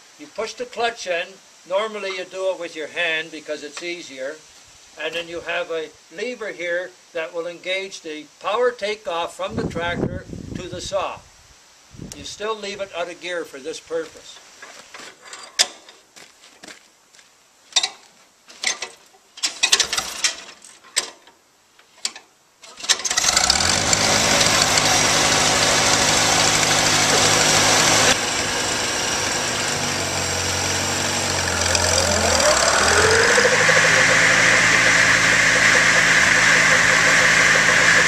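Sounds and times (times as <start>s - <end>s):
tractor engine hand-cranked: 18.6s - 21.2s, 22.6s - 38.0s
tractor engine running steadily: 22.8s - 38.0s
buzz saw whine: 23.1s - 38.0s.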